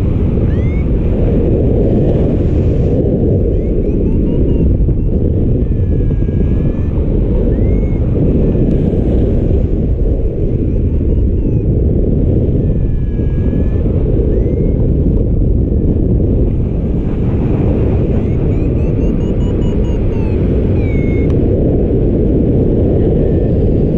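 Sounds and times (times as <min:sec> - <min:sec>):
wind buffeting microphone: 0:00.0 - 0:23.9
faint high chirps: 0:03.5 - 0:08.0, 0:18.2 - 0:21.3.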